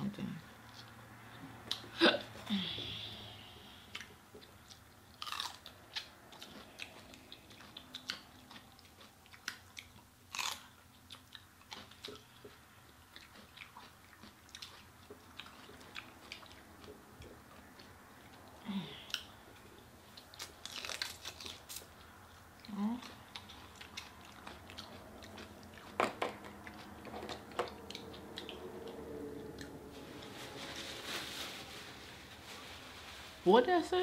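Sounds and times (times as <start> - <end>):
people chewing: 0.7 - 30.4
crunches of biting celery: 3.9 - 29.8.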